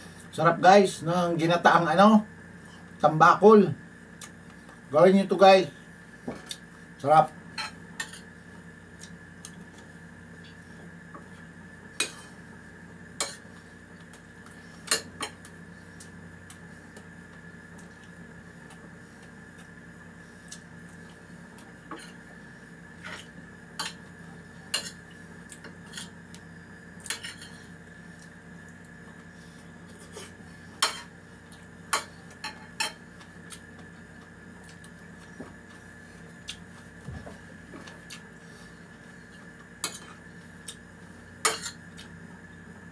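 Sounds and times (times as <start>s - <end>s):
background hum: 0.0s - 42.9s.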